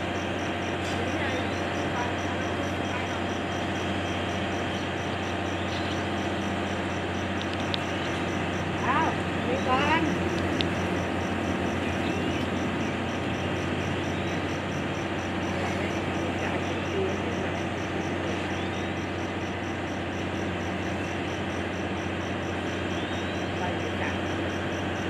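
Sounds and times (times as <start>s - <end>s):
low mechanical drone: 0.0s - 25.0s.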